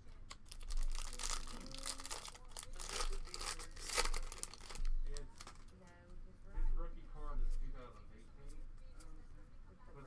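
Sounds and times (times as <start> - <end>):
foil wrapper crinkling: 0.5 - 5.7.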